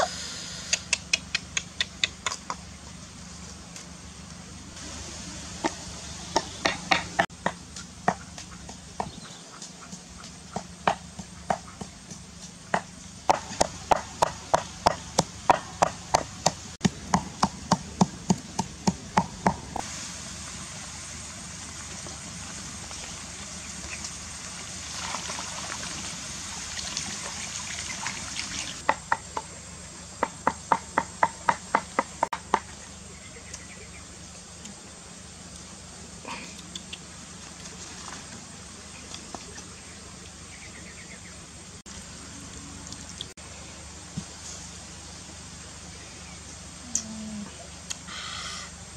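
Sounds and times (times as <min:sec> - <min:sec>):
pestle pounding in mortar: 0:10.2 - 0:19.7, 0:30.2 - 0:32.7
water boiling hard: 0:19.8 - 0:28.9.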